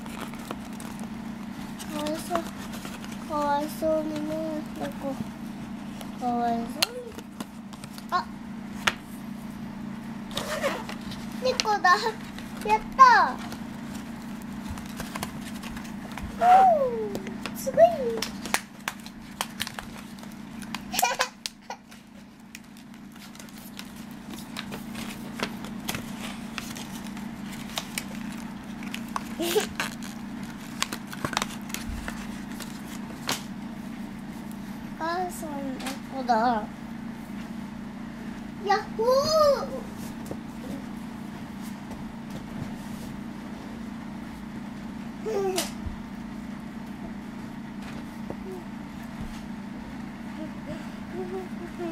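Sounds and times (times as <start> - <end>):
clicks and rustles of handling toys: 0.0 - 5.2, 10.8 - 16.3, 21.9 - 33.4
steady low hum: 0.0 - 51.9.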